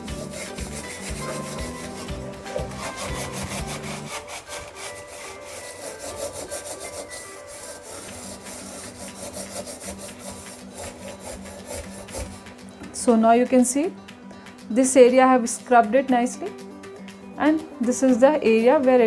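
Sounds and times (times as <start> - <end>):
scouring pad scrubbing steel saucepan: 0.0 - 12.5.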